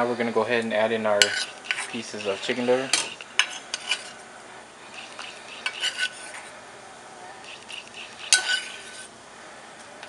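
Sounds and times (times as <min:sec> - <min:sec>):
faint steady hiss: 0:00.0 - 0:10.0
utensil clinking on metal pot: 0:01.2 - 0:04.1, 0:05.0 - 0:06.3, 0:07.5 - 0:09.0.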